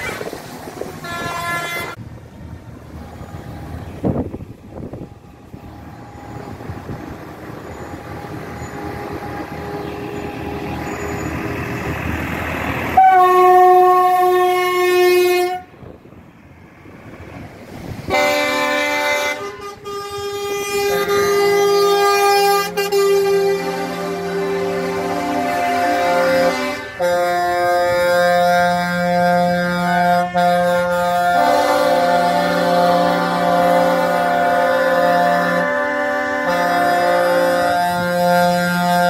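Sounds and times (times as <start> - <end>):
long horn blast: 0.0 - 2.0, 4.8 - 11.6, 12.8 - 15.9, 18.0 - 39.0
vehicle horns blaring: 0.0 - 2.0, 7.6 - 11.6, 13.0 - 15.9, 18.1 - 39.0
engine and road noise: 0.0 - 39.0.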